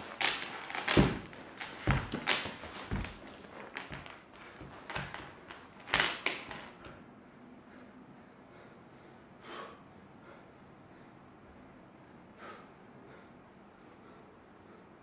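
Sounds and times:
body shifting on wooden floor: 0.0s - 6.7s
person breathing: 7.4s - 15.0s.

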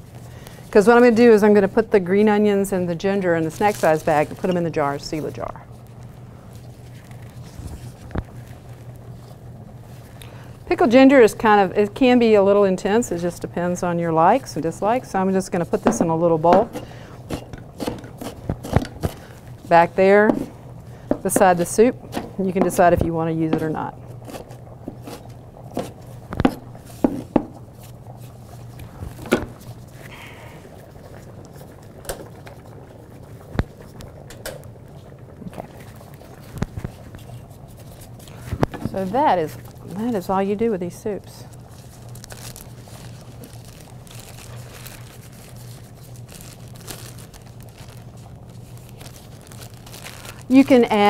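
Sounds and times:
steady low hum: 0.0s - 51.0s
plastic bag crinkling: 3.4s - 9.4s, 41.4s - 51.0s.

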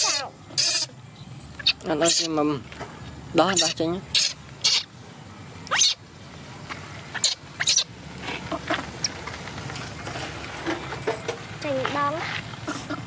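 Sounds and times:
baby monkeys squealing: 0.0s - 1.0s, 1.6s - 2.4s, 3.4s - 4.9s, 5.7s - 6.0s, 7.1s - 7.9s.

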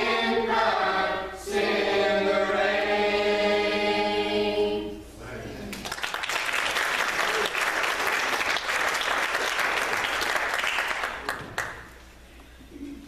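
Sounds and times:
crowd applauding: 5.8s - 11.9s.

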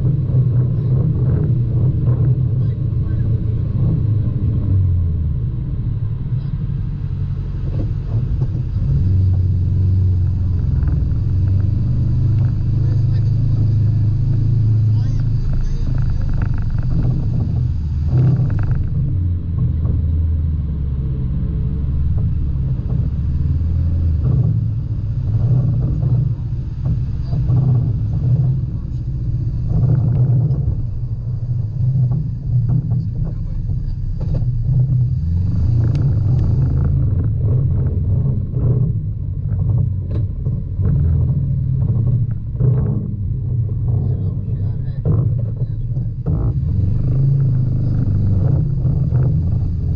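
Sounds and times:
off-road vehicle engine droning: 0.0s - 49.9s.

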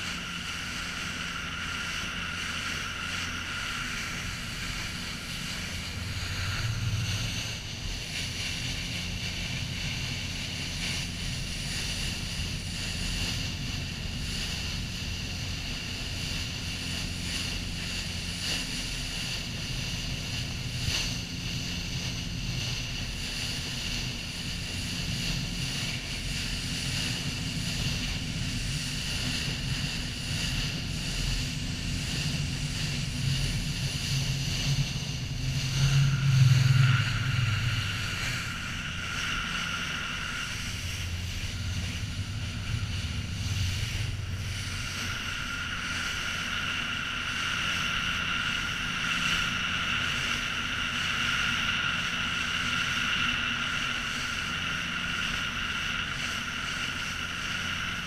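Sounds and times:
boat engine droning: 0.0s - 58.0s
bow wave rushing along hull: 0.0s - 58.0s
wind buffeting microphone: 3.3s - 18.4s.

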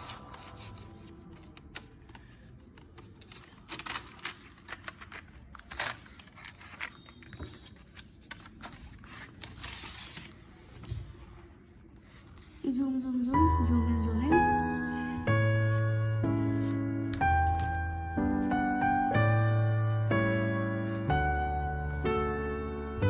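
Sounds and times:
paper rustling: 0.0s - 12.7s, 14.9s - 18.5s.

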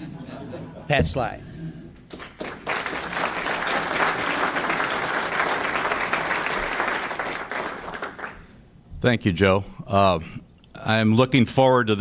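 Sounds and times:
audience applauding: 2.1s - 8.6s.

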